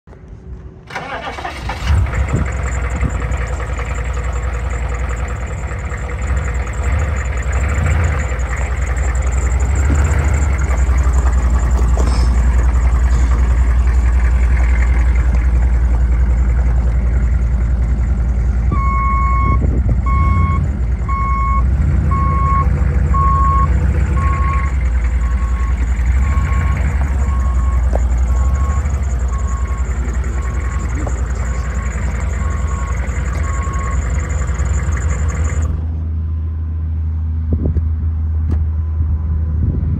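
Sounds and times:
diesel engine idling: 0.4s - 37.3s
repeating beep: 18.8s - 34.6s.

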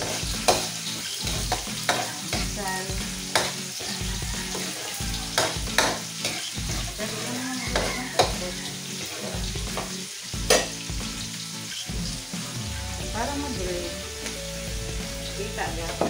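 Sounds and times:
spatula scraping a pan: 0.0s - 2.5s, 3.3s - 10.8s
food sizzling in hot oil: 0.0s - 16.0s
spatula knocking against pan: 5.3s - 6.4s, 7.7s - 8.4s.

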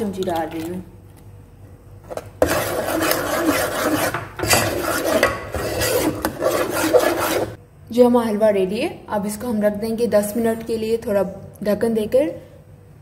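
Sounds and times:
metal spoon scraping a pot: 2.4s - 7.6s.

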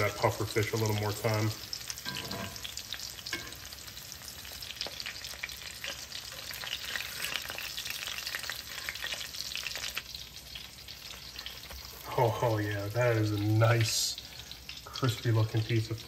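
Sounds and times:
fish frying in hot oil: 0.0s - 16.0s.

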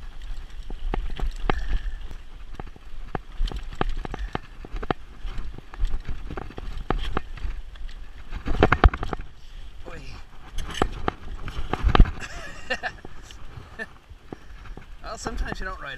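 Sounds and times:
bike chain and frame clattering: 0.0s - 12.2s
wind rumble on microphone: 0.0s - 15.9s.

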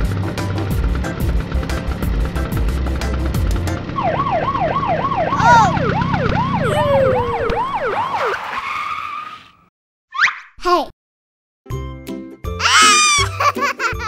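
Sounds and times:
police siren yelping: 4.0s - 8.7s.

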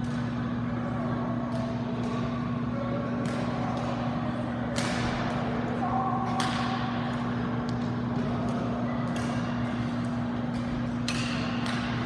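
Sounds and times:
racket hitting shuttlecock: 4.7s - 5.4s, 6.3s - 12.0s.

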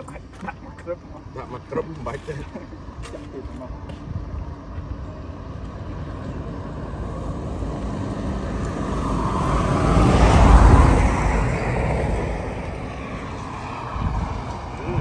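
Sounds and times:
road vehicle passing by: 3.3s - 15.0s.

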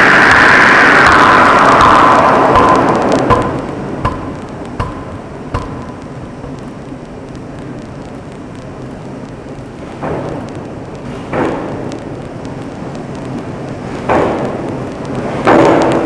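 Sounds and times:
machine noise: 0.0s - 16.0s
rushing noise: 0.0s - 16.0s
forging hammer blows ringing: 1.8s - 6.0s.

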